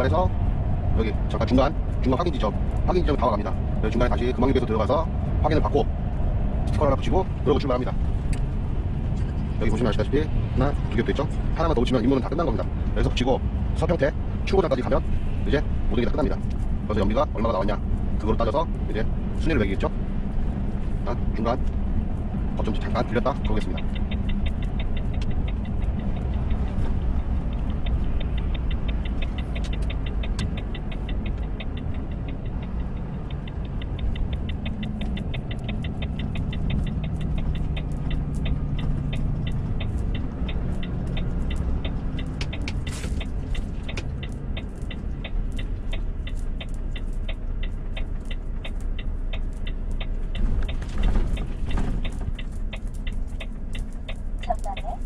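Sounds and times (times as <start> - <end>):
diesel truck engine: 0.0 - 55.0
fast ticking: 21.0 - 55.0.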